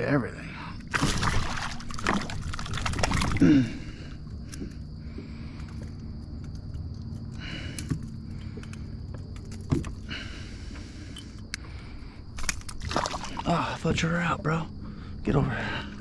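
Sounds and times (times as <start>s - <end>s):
fish splashing at the surface: 0.9s - 3.4s, 12.4s - 13.5s.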